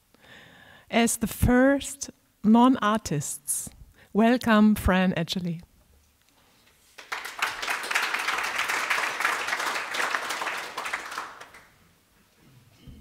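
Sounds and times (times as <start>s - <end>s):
audience applauding: 7.0s - 11.8s.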